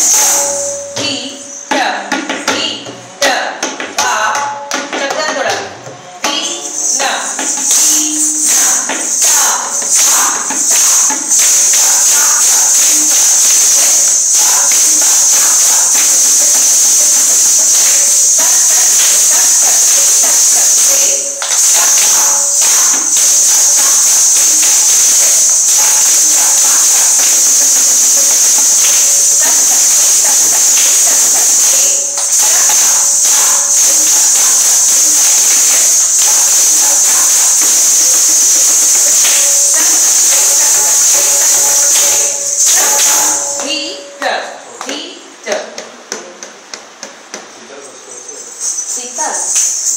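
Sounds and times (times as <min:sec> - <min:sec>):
ankle bells jingling: 0:47.8 - 0:49.9.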